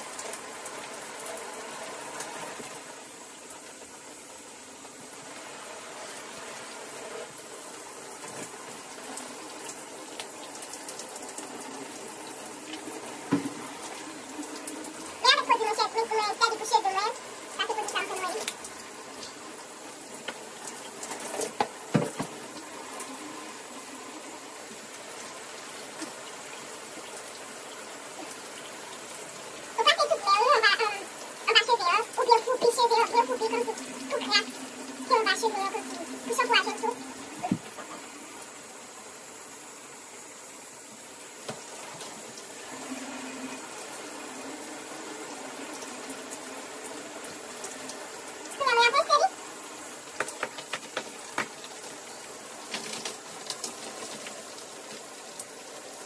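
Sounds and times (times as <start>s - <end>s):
shower water running: 0.0s - 56.0s
knocks: 21.6s - 22.4s.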